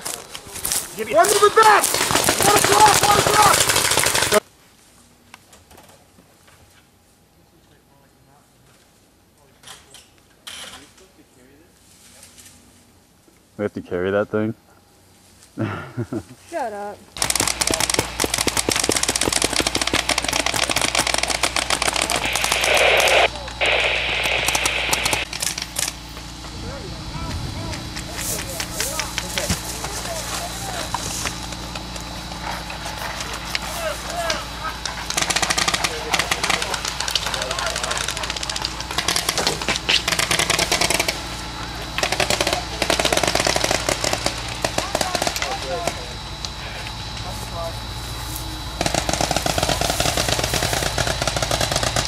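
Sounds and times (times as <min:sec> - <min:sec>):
paintball guns firing: 0:01.0 - 0:04.4, 0:17.2 - 0:26.0, 0:34.1 - 0:46.1, 0:48.8 - 0:52.0
loud hiss: 0:17.2 - 0:25.4.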